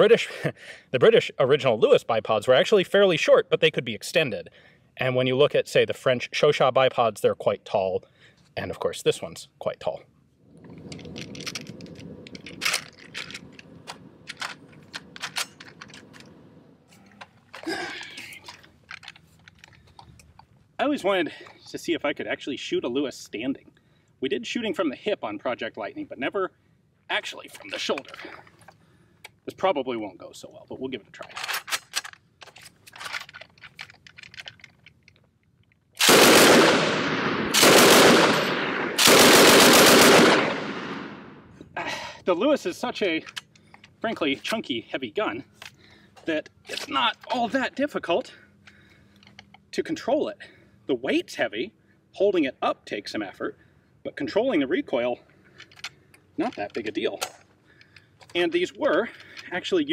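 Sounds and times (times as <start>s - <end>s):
handling rustling: 10.5s - 20.7s, 31.2s - 35.8s
sharp metallic clicks and knocks: 10.6s - 16.4s, 31.2s - 35.9s, 55.4s - 59.5s
machine gun automatic fire: 36.0s - 41.2s.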